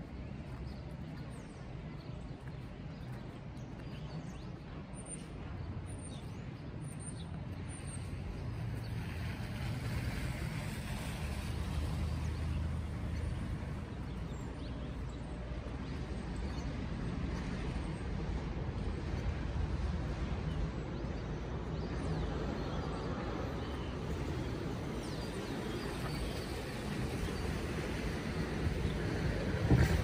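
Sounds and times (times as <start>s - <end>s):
low rumble of traffic: 0.0s - 30.0s
vehicle passing on wet street: 8.0s - 16.3s, 22.3s - 30.0s.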